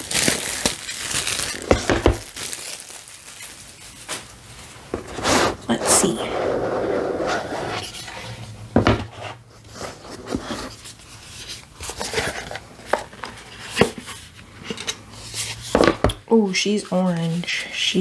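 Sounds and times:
paper rustling: 0:09.6 - 0:15.9, 0:16.5 - 0:18.0.

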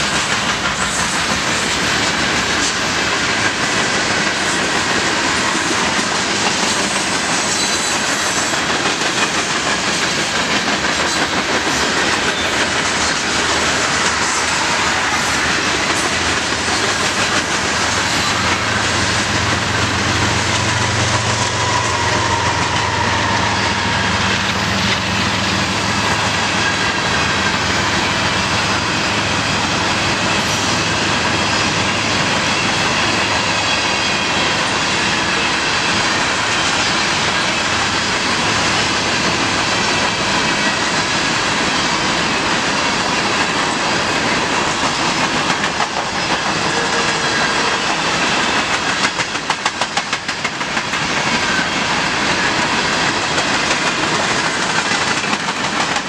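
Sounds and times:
train wheels rolling on rails: 0:00.0 - 0:56.0
wheels clicking over rail joint: 0:42.6 - 0:56.0.

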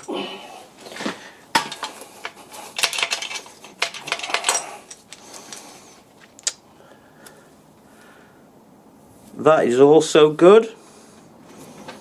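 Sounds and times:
metal bearing caps clinking: 0:00.9 - 0:05.3.

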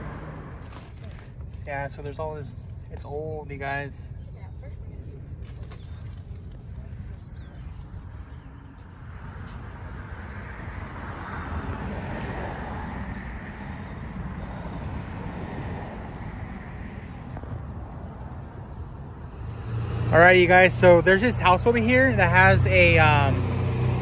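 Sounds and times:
vehicle passing: 0:00.0 - 0:01.0, 0:09.0 - 0:24.0
wind rumble on microphone: 0:00.0 - 0:21.8.

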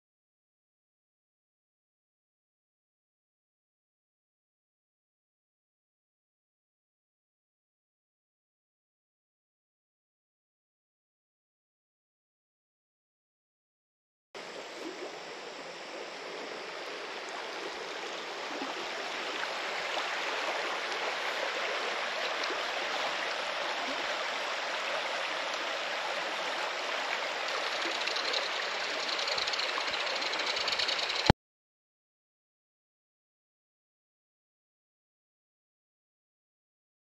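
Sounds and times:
running water rushing: 0:14.4 - 0:31.3.

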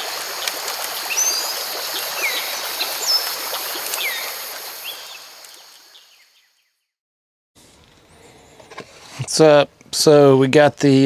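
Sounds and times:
stream water rushing: 0:00.0 - 0:06.0
birds chirping: 0:01.0 - 0:06.9.

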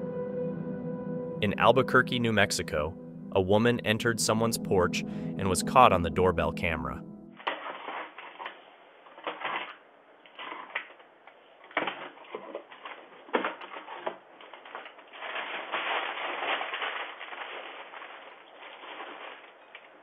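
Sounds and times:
packaging rustling and crinkling: 0:07.4 - 0:20.0.

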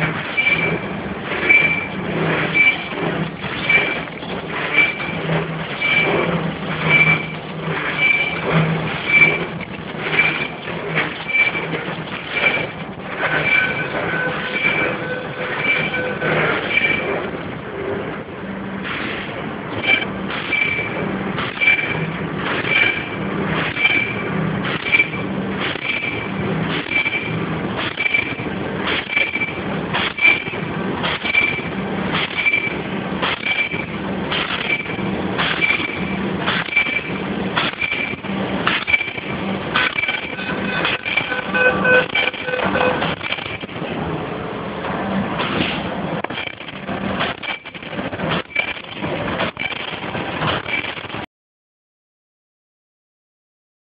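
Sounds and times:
machine mechanical clatter: 0:00.0 - 0:51.3
brief high machine whine: 0:01.4 - 0:03.0, 0:06.8 - 0:08.4, 0:12.4 - 0:17.2.

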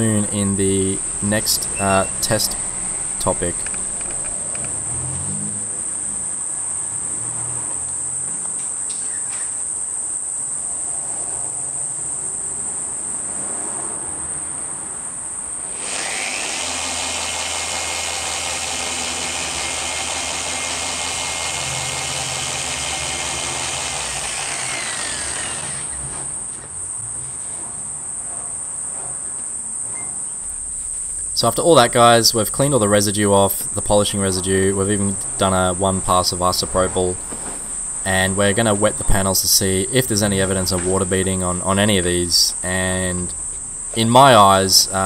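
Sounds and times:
crickets chirping: 0:00.0 - 0:15.8, 0:21.6 - 0:45.0
polisher running: 0:15.7 - 0:26.0.

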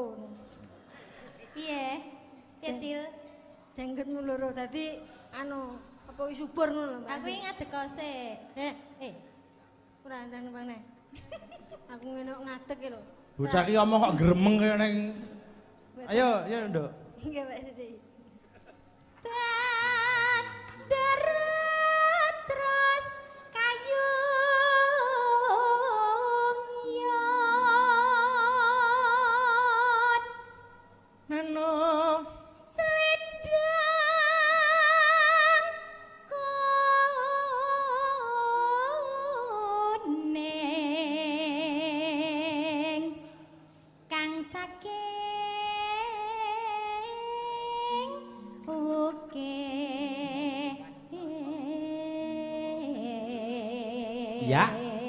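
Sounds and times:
woman singing with vibrato: 0:19.2 - 0:30.6, 0:31.3 - 0:43.5, 0:44.1 - 0:55.0.

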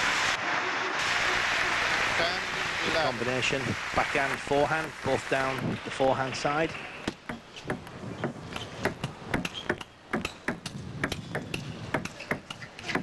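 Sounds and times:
table tennis ball clicking: 0:07.1 - 0:12.8.

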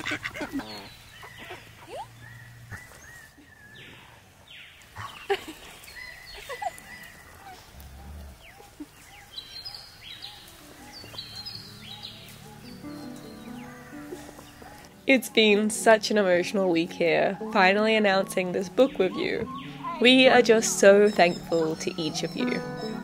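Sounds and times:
ducks quacking: 0:00.0 - 0:01.9, 0:13.6 - 0:23.0
higher chirps: 0:10.9 - 0:23.0.

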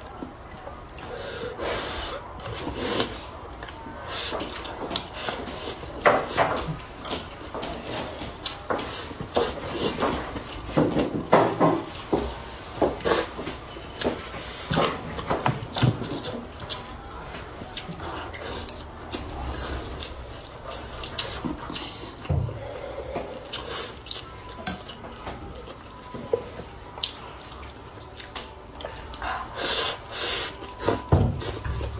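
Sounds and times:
chewing and smacking: 0:14.0 - 0:17.0, 0:17.7 - 0:31.9.

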